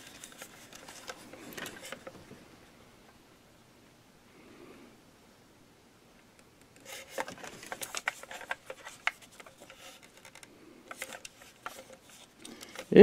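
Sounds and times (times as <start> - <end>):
plastic rubbing scrapes: 0.0 - 2.2, 6.8 - 13.0.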